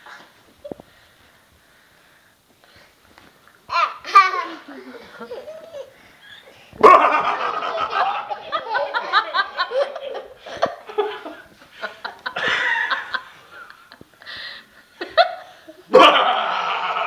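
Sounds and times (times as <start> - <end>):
toddler laughing: 3.7 - 11.4.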